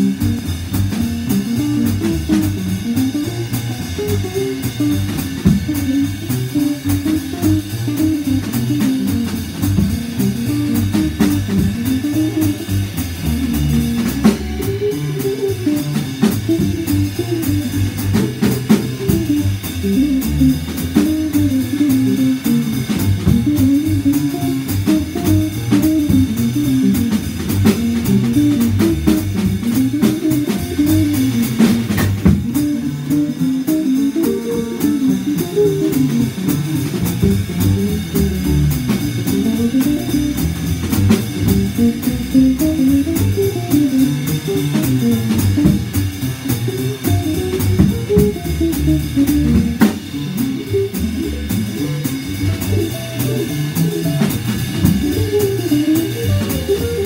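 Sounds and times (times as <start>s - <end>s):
drum kit keeping time: 0.0s - 57.0s
upright double bass: 0.0s - 57.0s.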